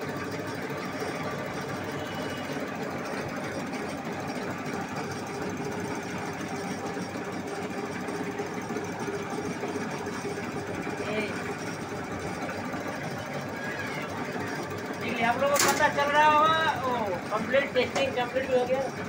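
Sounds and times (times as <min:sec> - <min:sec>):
steady machine hum: 0:00.0 - 0:19.0
injectors clattering: 0:11.3 - 0:19.0.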